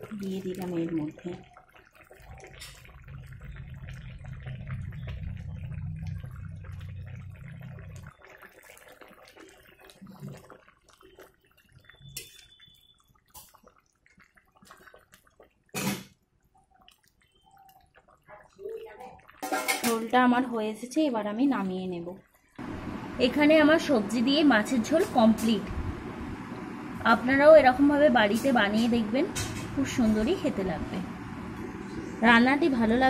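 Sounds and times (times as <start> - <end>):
steady low hum: 22.6 - 33.0.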